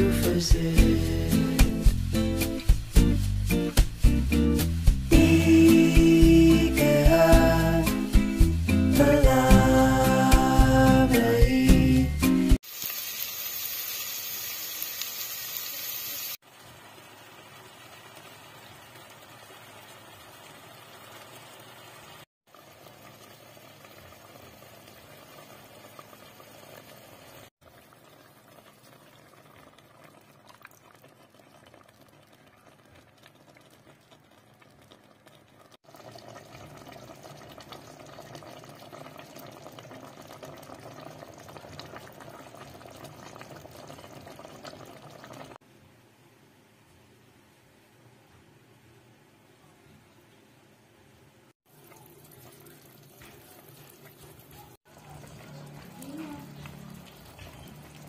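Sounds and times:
food sizzling in oil: 12.5 - 30.2
sauce bubbling in a pot: 12.5 - 45.6, 51.6 - 58.0.

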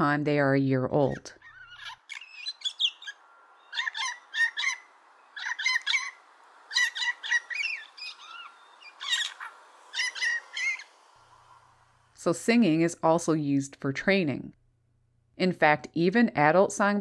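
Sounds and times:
blue jay squeaky calls: 1.1 - 11.0.

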